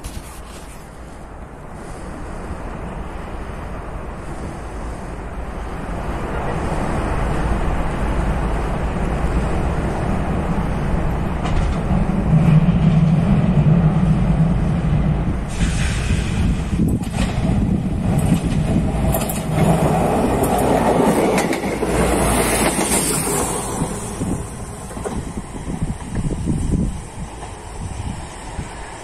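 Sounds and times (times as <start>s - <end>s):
diesel train rumbling: 0.0s - 29.0s
brief hiss: 15.5s - 17.2s.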